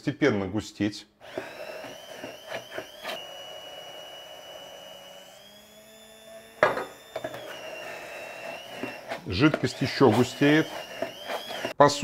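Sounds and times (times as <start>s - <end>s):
immersion blender motor whining: 1.2s - 11.8s
blender knocking in container: 6.5s - 11.7s.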